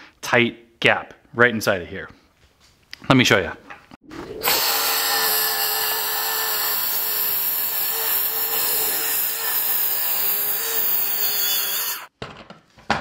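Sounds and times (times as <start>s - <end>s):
circular saw cutting wood: 4.3s - 12.1s.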